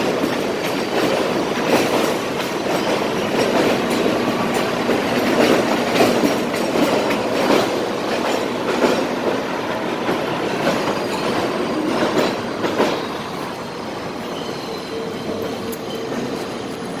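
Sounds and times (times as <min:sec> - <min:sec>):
subway train rumble: 0:00.0 - 0:17.0
wheels clacking over rail joints: 0:00.0 - 0:17.0.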